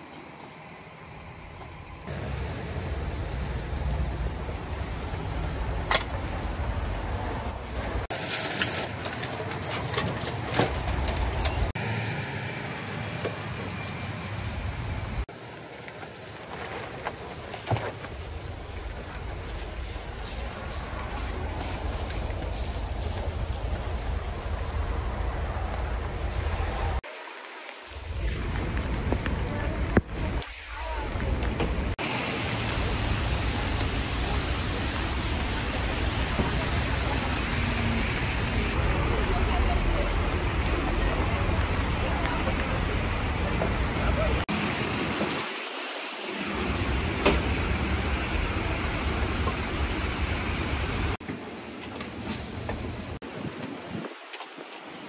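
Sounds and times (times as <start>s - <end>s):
traffic on a wet road: 0.0s - 55.0s
steady rain: 2.0s - 9.2s, 10.2s - 55.0s.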